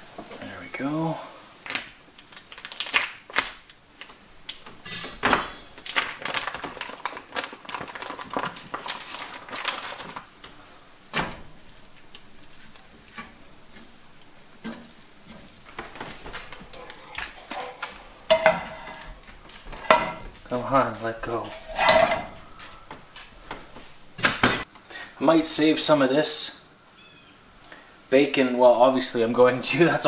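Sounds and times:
pans and dishes clattering: 0:04.8 - 0:05.9, 0:14.6 - 0:20.6, 0:21.3 - 0:22.6, 0:24.2 - 0:24.7.

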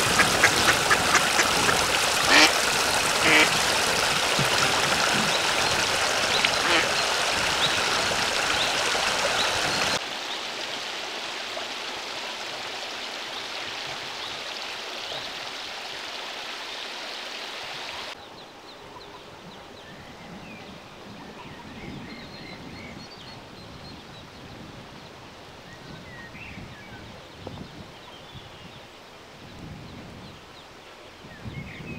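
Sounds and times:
ducklings peeping: 0:00.0 - 0:02.5, 0:03.2 - 0:03.6
flowing water rushing: 0:00.0 - 0:19.4.

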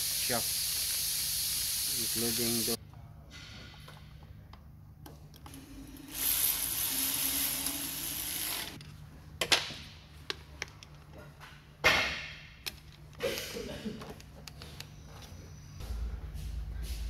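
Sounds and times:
steady hiss of air: 0:00.0 - 0:02.8.

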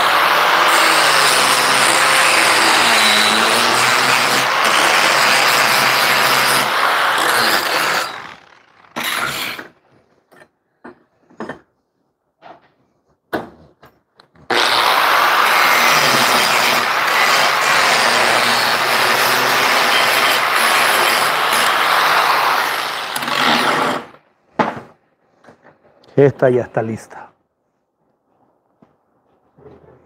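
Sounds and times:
angle grinder grinding metal: 0:00.0 - 0:09.7, 0:14.5 - 0:24.2.

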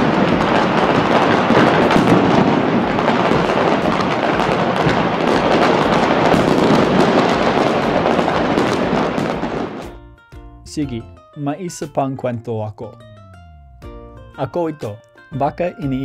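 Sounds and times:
fireworks bangs and crackles: 0:00.0 - 0:09.9.

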